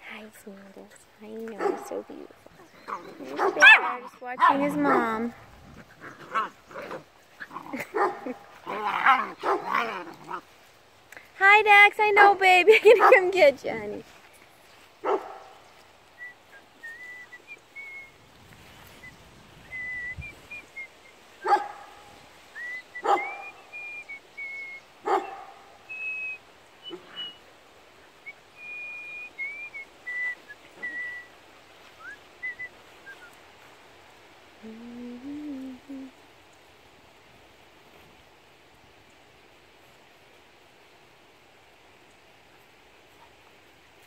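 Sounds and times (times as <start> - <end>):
puppy barks: 1.6 - 2.0, 2.9 - 5.1, 6.2 - 10.4, 15.0 - 15.5, 21.4 - 22.0, 23.0 - 23.5, 25.0 - 25.7.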